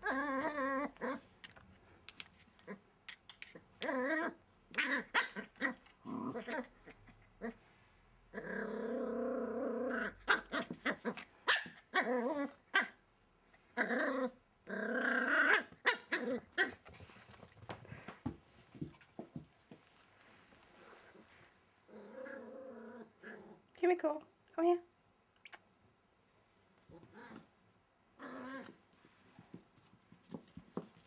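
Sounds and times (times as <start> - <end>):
dogs growling: 3.8 - 7.6, 8.3 - 11.3, 21.9 - 23.7.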